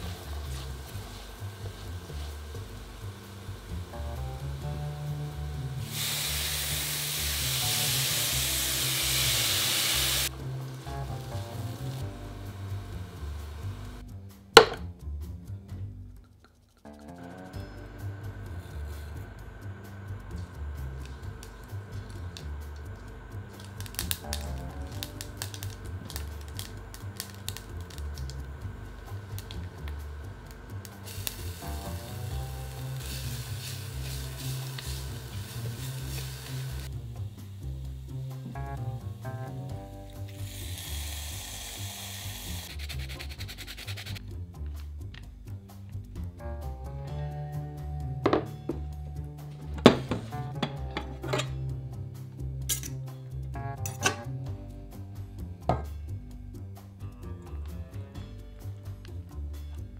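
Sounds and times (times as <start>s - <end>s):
food sizzling in a hot pan: 0.0s - 14.0s, 19.8s - 44.2s
background music: 0.0s - 59.9s.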